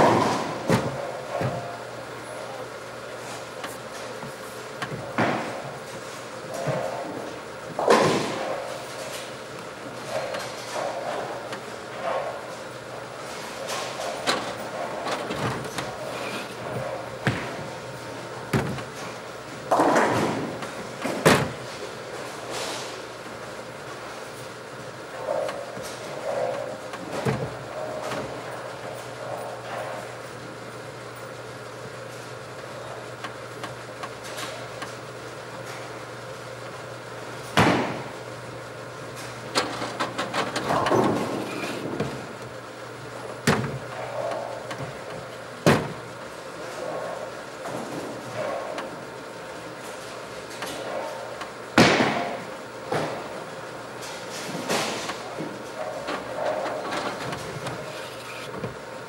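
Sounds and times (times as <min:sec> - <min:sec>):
bowling balls and machinery knocking: 0:00.0 - 0:02.7, 0:03.4 - 0:30.6, 0:32.2 - 0:59.0.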